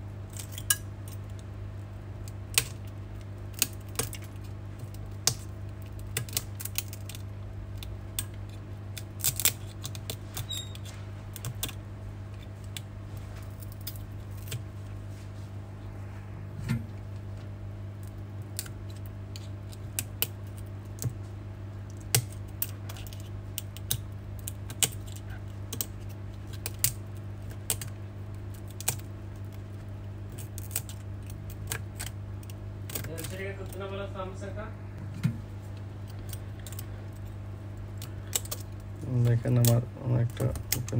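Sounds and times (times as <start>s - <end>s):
steady low hum: 0.0s - 40.9s.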